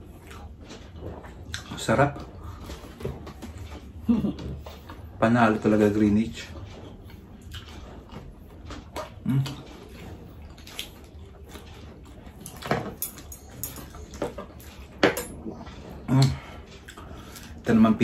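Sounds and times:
chewing and mouth noises: 0.0 - 5.7, 6.4 - 17.8
low murmurs: 9.0 - 10.6.

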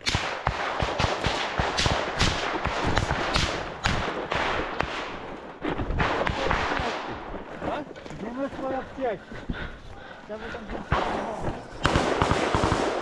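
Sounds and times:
leaves and branches rustling: 5.0 - 12.2.

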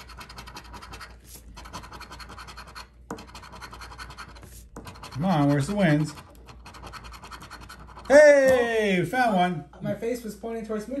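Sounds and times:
coin scratching ticket: 0.0 - 8.1.

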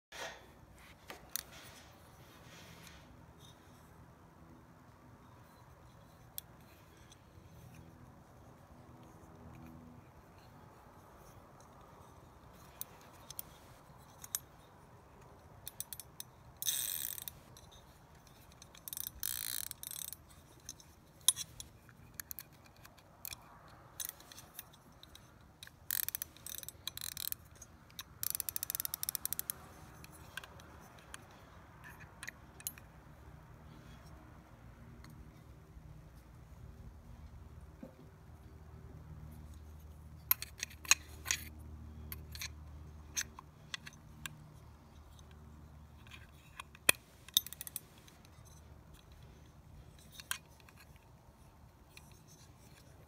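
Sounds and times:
reel handling clicks and knocks: 0.2 - 3.8, 5.4 - 33.1, 39.2 - 53.0
fly reel ratchet clicking: 15.6 - 32.8.

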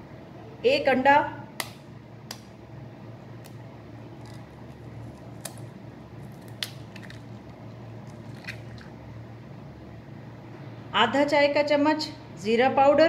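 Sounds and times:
egg cracking clicks: 4.2 - 8.9.

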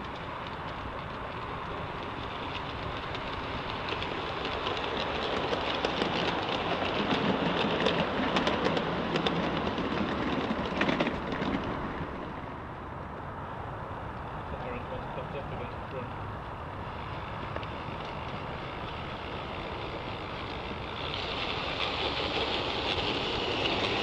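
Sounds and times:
model train wheels clattering: 0.0 - 12.0, 17.0 - 24.0.

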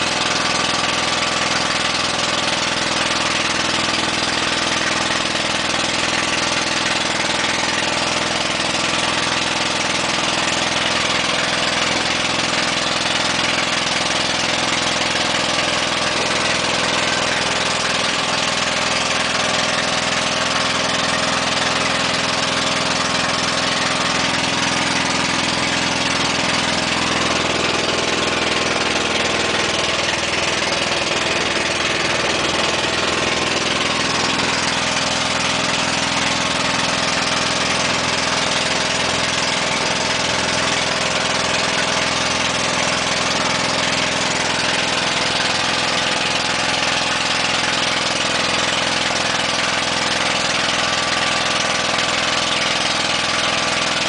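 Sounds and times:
boat engine droning: 0.0 - 54.0.

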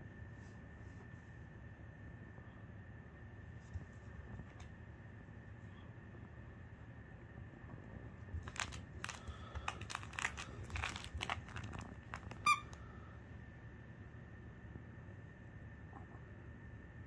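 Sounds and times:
plush toy rustling: 8.4 - 12.8
toy squeak: 12.3 - 12.8.

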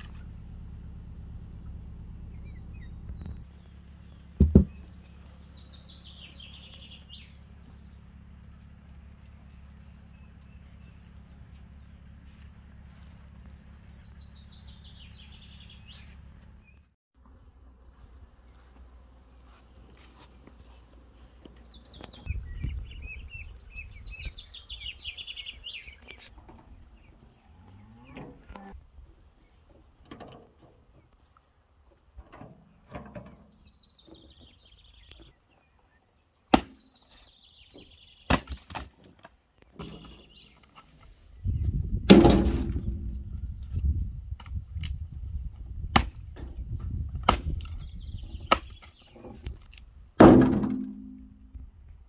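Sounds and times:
birdsong: 0.0 - 17.0, 17.8 - 52.0
wooden knocks of logs: 4.4 - 5.0, 36.5 - 36.9, 37.8 - 41.1, 42.0 - 43.8, 45.9 - 51.6.

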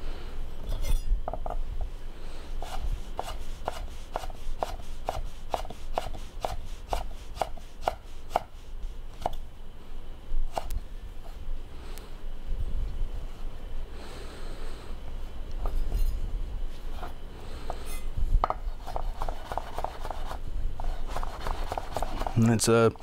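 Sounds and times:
knife chopping on wooden board: 2.6 - 8.5, 18.4 - 20.4.

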